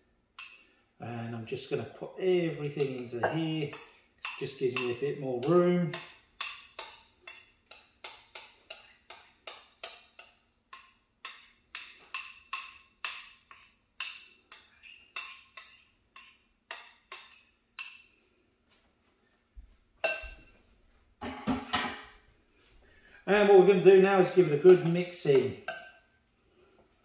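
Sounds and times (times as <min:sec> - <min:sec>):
utensil clinking on ceramic bowl: 0:02.7 - 0:18.2, 0:20.0 - 0:20.5, 0:24.7 - 0:26.1.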